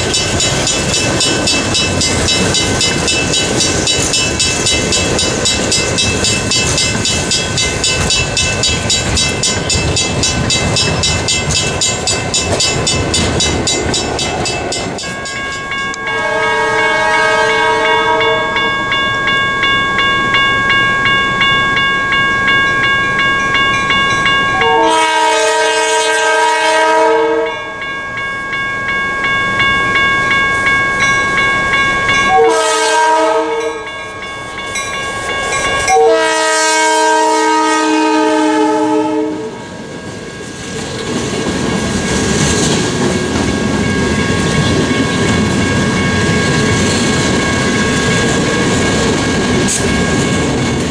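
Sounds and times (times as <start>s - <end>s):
crossing bell ringing: 0.0s - 50.9s
locomotive horn blasts: 16.0s - 18.8s, 24.6s - 27.7s, 32.3s - 33.9s, 35.9s - 39.7s.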